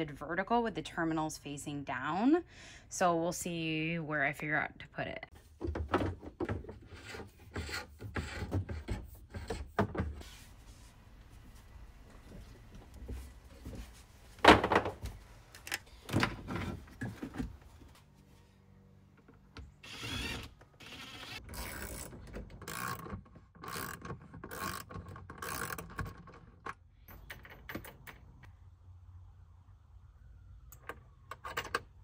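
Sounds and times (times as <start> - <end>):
cordless drill bursts: 19.8 - 21.4.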